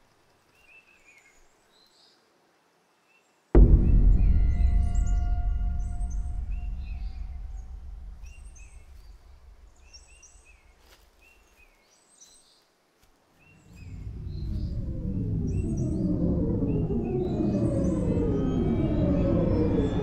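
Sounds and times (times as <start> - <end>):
low musical drone: 3.6 - 10.0, 13.7 - 20.0
low rumbling swell: 3.6 - 10.5, 13.6 - 20.0.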